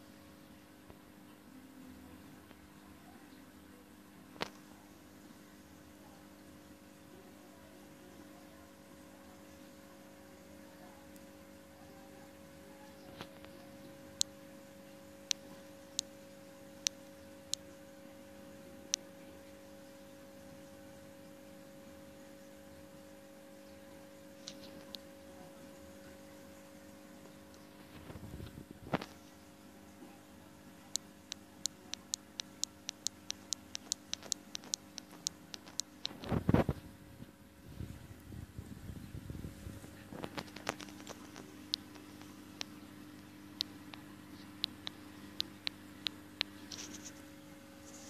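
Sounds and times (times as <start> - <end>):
aquarium air filter humming: 0.0 - 48.0
sharp high ticks: 30.9 - 36.2
rapid sharp clicking: 32.4 - 36.2.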